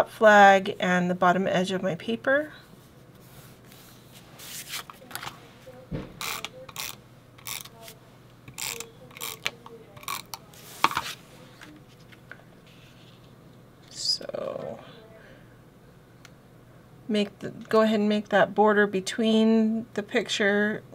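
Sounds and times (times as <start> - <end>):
tape runner rasping on card: 6.2 - 11.0.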